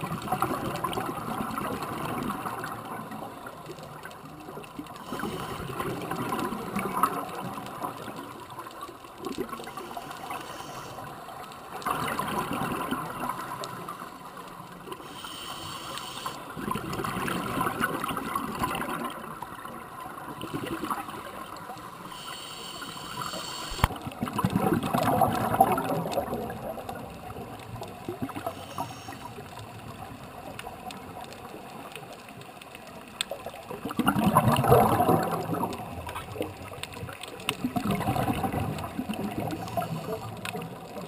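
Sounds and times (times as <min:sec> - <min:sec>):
exhaled bubbles gurgling underwater: 0:00.0 - 0:41.0
regulator air hiss: 0:09.6 - 0:11.1, 0:15.0 - 0:16.5, 0:22.0 - 0:23.9, 0:28.4 - 0:29.3.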